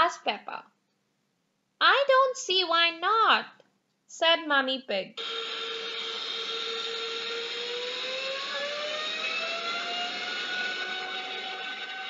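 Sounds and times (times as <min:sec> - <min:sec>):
aeroplane engine hum rising: 0:07.5 - 0:12.0.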